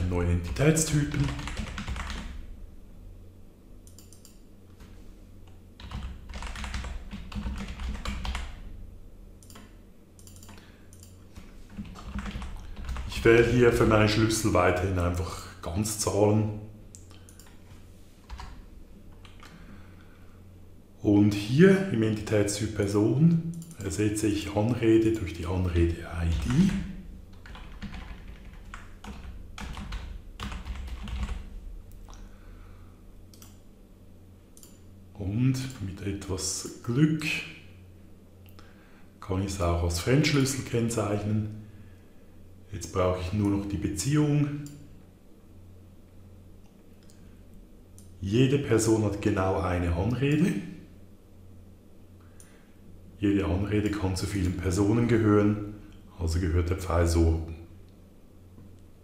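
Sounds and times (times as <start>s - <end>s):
typing on a keyboard: 0.4s - 2.4s, 5.8s - 8.6s, 9.5s - 13.2s, 27.4s - 31.4s.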